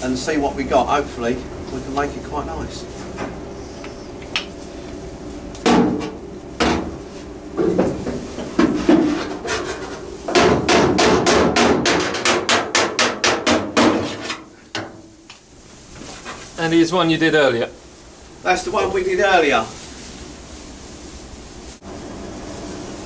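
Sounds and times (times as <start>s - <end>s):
hammer striking steel panel: 10.3s - 15.1s.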